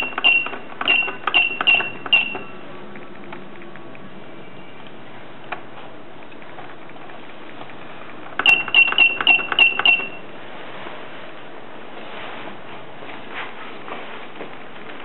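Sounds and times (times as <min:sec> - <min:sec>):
short high beeps: 0:00.0 - 0:02.6, 0:08.4 - 0:10.2
dispenser clicks: 0:00.0 - 0:04.0, 0:05.5 - 0:10.2.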